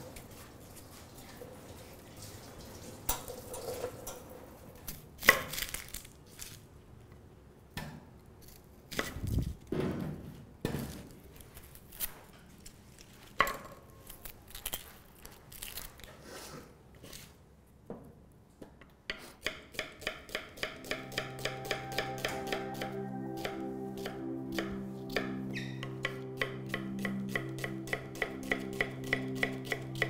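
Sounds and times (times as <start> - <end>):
onion skins rustling and scraping: 4.8 - 6.8, 8.4 - 9.7, 10.8 - 17.5.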